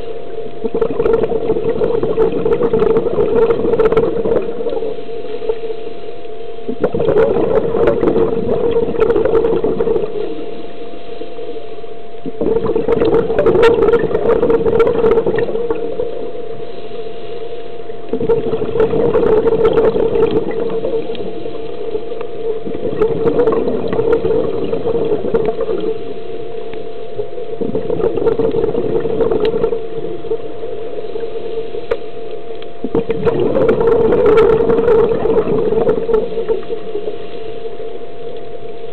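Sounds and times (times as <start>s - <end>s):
steady hum: 0.0s - 38.9s
quiet inhalations: 4.3s - 6.9s, 9.9s - 12.7s, 15.9s - 18.5s, 24.4s - 27.6s, 28.3s - 33.0s, 36.0s - 38.9s.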